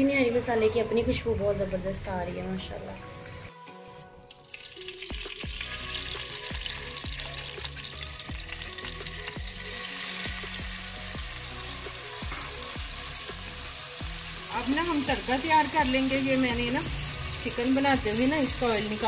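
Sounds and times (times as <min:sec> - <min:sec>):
gravy sizzling and bubbling: 0:04.3 - 0:19.0.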